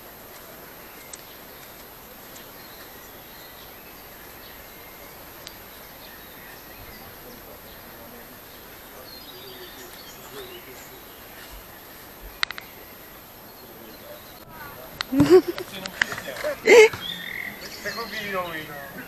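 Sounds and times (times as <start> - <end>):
faint bird chirps: 0.0 - 19.0
faint distant voices: 0.0 - 19.0
steady background hiss: 0.0 - 19.0
sharp clicks: 12.3 - 12.9, 14.9 - 17.5.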